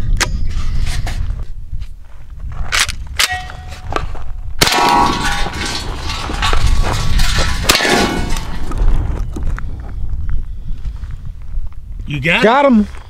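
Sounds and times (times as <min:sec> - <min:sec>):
shotgun firing: 0:04.6 - 0:06.7, 0:07.6 - 0:08.6.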